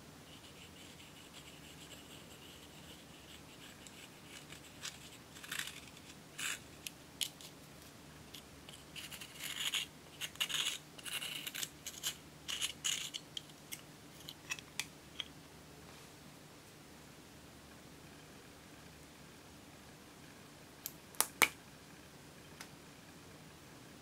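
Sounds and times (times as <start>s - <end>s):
metal spatula scraping powder: 0.5s - 6.7s, 8.7s - 13.2s.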